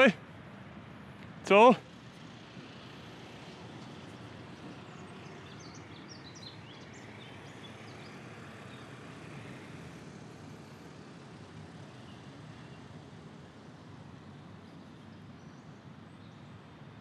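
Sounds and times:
distant traffic hum: 0.0s - 17.0s
small birds chirping: 1.2s - 9.7s, 11.8s - 13.0s, 14.2s - 17.0s.

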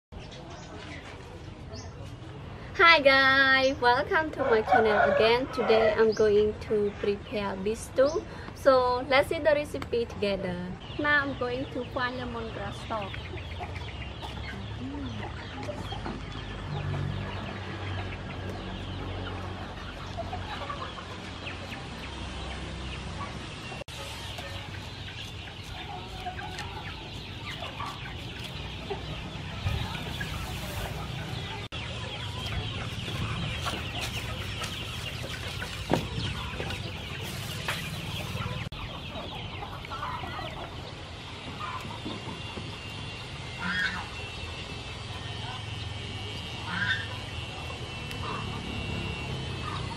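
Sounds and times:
chickens clucking: 0.2s - 2.7s, 3.3s - 49.9s.

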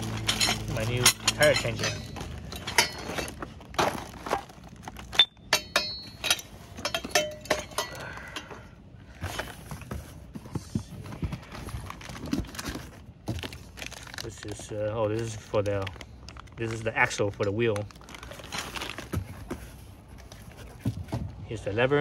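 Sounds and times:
metal tools knocking and clinking: 0.0s - 3.4s, 5.1s - 8.6s.

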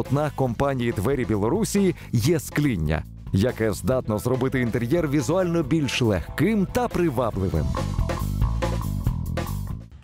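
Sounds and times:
bass line: 0.0s - 10.0s.

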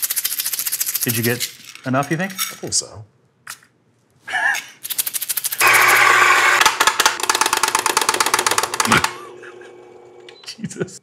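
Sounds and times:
coffee grinder crackling: 5.4s - 9.1s
grinder motor hum: 5.6s - 10.4s.

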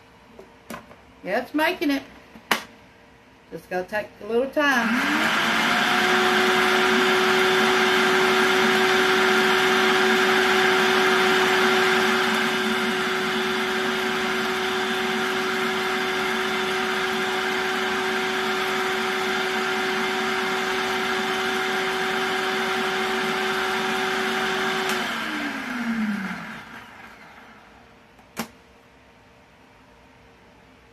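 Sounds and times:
food processor motor grinding: 4.8s - 27.7s.

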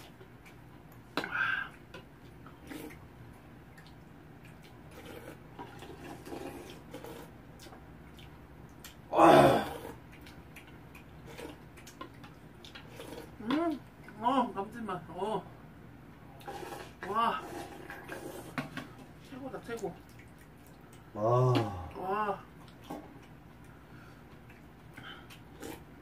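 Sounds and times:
slurping soup: 2.4s - 3.0s, 4.7s - 7.6s, 9.6s - 10.1s, 11.1s - 13.4s, 16.4s - 18.8s, 25.1s - 26.0s.

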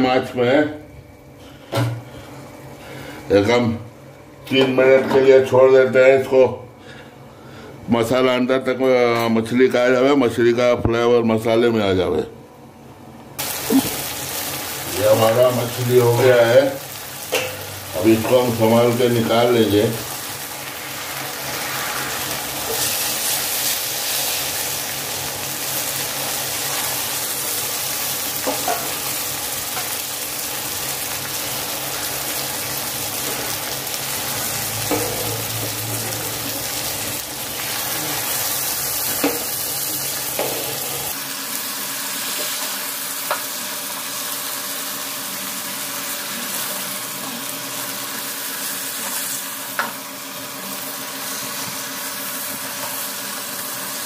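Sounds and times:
fish sizzling in a pan: 13.4s - 54.0s.

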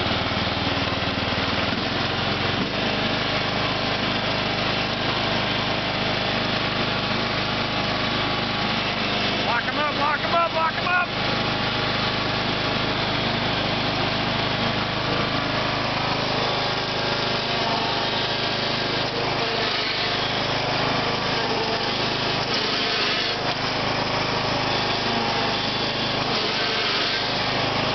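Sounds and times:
lawn tractor engine running: 0.0s - 27.9s.

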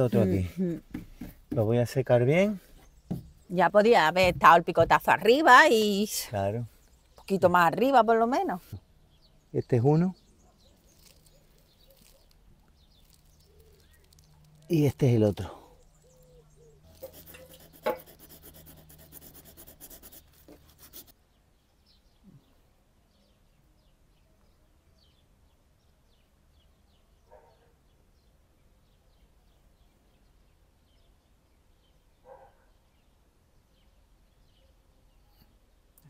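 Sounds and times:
soft thuds: 2.8s - 3.5s, 4.1s - 5.2s
faint bird chirps: 9.0s - 20.3s.

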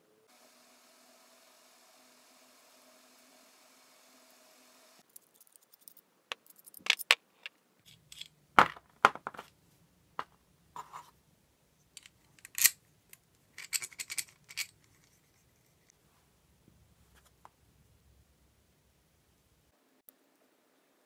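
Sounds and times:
small metal parts clinking: 5.0s - 7.2s, 7.8s - 8.4s, 11.9s - 15.8s.

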